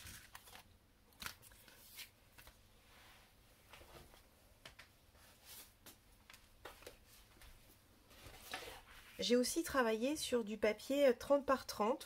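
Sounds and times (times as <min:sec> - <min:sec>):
paper sheets rustling on table: 0:00.0 - 0:02.6, 0:08.1 - 0:09.4.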